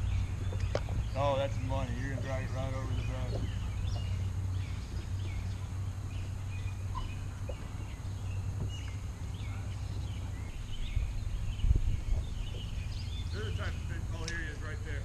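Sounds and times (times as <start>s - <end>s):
low thumps: 0.0s - 14.9s
birds chirping and calling: 0.0s - 15.0s
steady low rumble: 0.0s - 15.0s.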